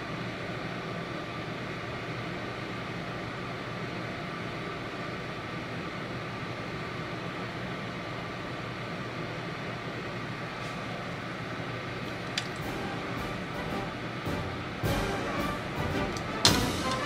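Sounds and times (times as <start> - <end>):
kitchen fan humming: 5.4 - 17.0.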